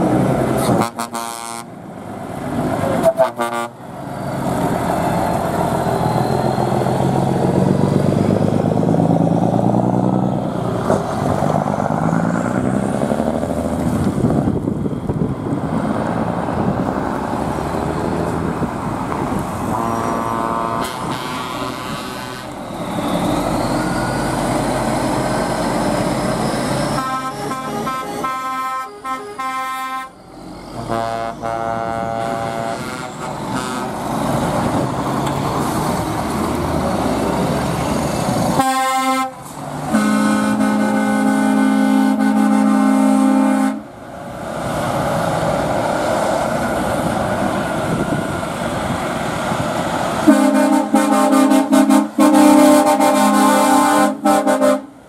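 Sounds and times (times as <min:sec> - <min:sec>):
lorry diesel engines passing: 0:00.0 - 0:55.0
vehicle horn: 0:00.6 - 0:01.7, 0:03.0 - 0:03.8, 0:19.7 - 0:22.6, 0:27.0 - 0:30.1, 0:30.8 - 0:33.9, 0:38.6 - 0:43.9, 0:50.2 - 0:54.9.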